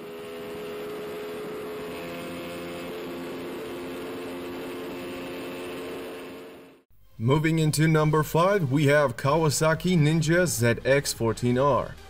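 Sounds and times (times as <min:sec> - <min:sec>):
motorcycle engine droning: 0:00.0 - 0:06.9.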